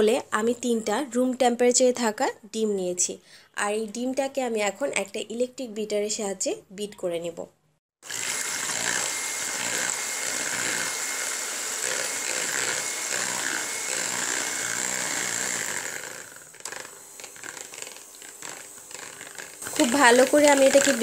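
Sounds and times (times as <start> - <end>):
electric hand mixer whirring: 8.0 - 21.0.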